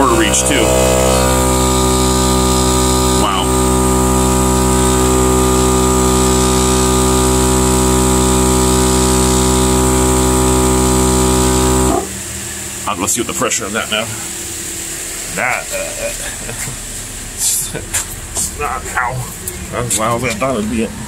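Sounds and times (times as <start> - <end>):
air compressor running: 0.0 - 19.8.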